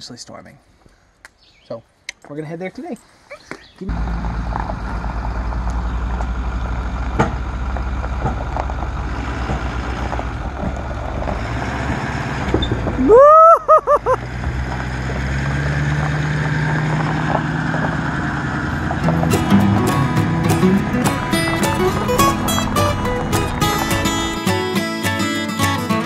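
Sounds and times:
pickup truck engine running: 3.9 - 13.1, 14.1 - 24.7
loud rising squeal: 18.5 - 24.6.

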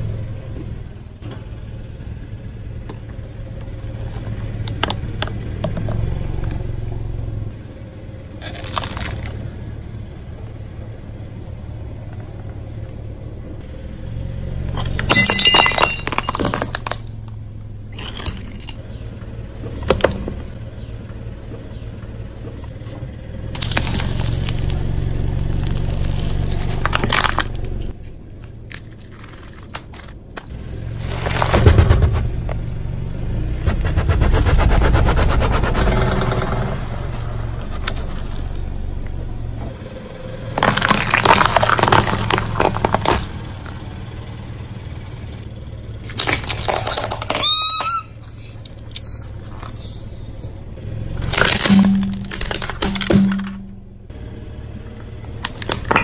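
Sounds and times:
car engine running low: 0.0 - 56.0
tyres crushing objects: 8.4 - 9.5, 14.7 - 17.4, 18.0 - 18.8, 23.6 - 27.9, 28.5 - 32.5, 40.4 - 43.8, 46.0 - 50.5, 51.1 - 53.9, 55.3 - 56.0.

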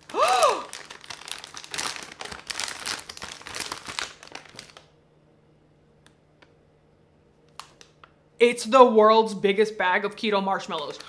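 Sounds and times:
plastic bag crinkling: 0.0 - 4.9, 10.6 - 11.0.

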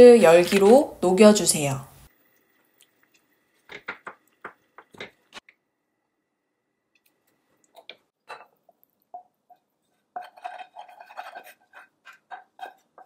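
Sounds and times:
wooden spoon scraping a saucepan: 9.1 - 13.0.

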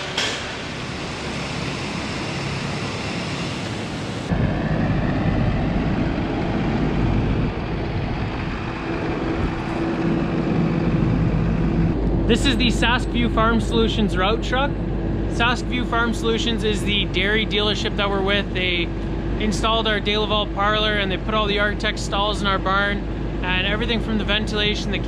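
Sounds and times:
diesel truck engine idling: 0.0 - 25.0
wind on microphone: 4.3 - 13.0.

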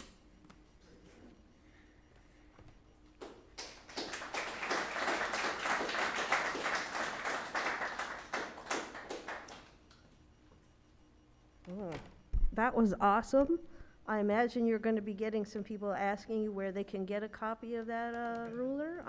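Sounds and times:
people clapping: 3.2 - 10.0.

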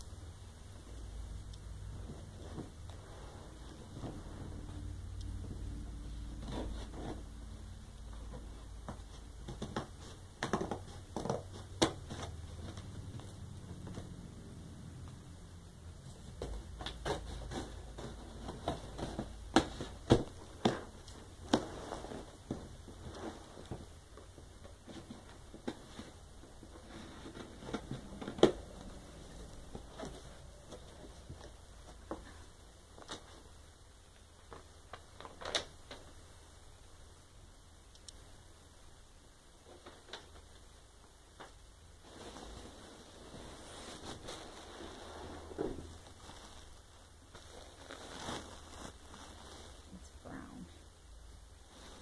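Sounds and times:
cardboard rustling: 8.2 - 14.2, 16.2 - 33.5, 42.0 - 49.9.

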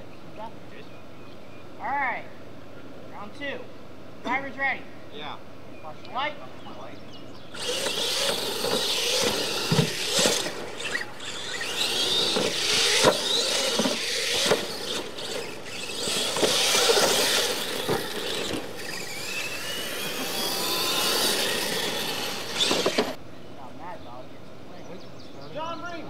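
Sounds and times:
electric motors whining: 7.4 - 23.2
tyres on loose dirt: 7.5 - 23.2.

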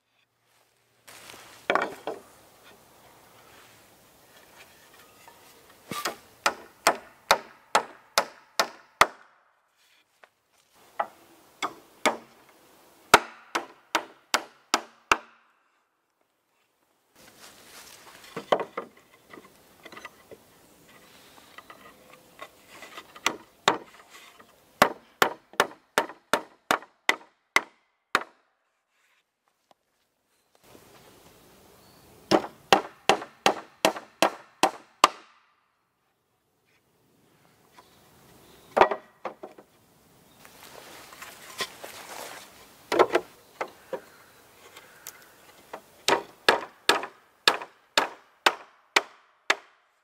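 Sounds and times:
hatchet hammering nails into wood: 6.0 - 9.4, 13.2 - 15.4, 24.8 - 28.4, 32.3 - 35.4, 46.1 - 49.8.

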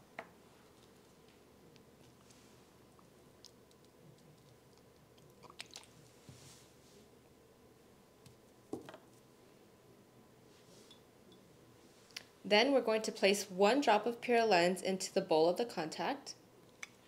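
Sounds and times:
soft hiss: 0.0 - 5.0, 5.7 - 12.6.

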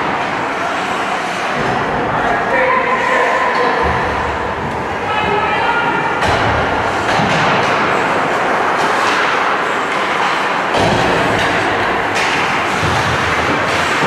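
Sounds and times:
ice rink crowd noise: 0.0 - 14.0.

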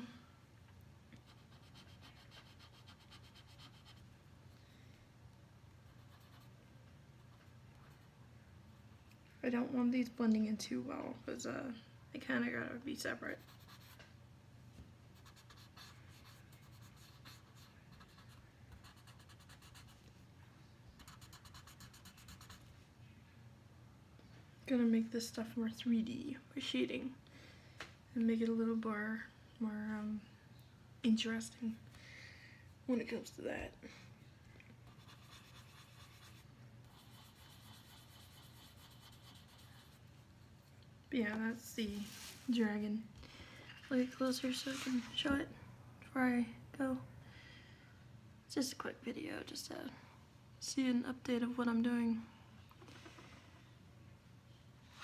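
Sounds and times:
pencil scratching on paper: 1.2 - 4.0, 5.9 - 6.5, 13.3 - 14.0, 15.2 - 20.0, 21.0 - 22.6, 34.8 - 40.2.

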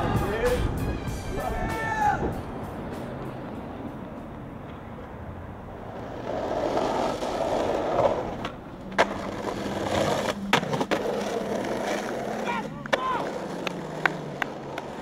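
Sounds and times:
skateboard wheels rolling on pavement: 0.0 - 15.0
skateboard clacking on ground: 5.8 - 15.0.

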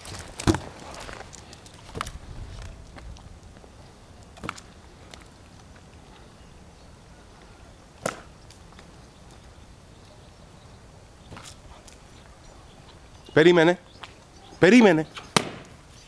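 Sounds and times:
faint outdoor background: 0.0 - 16.0.

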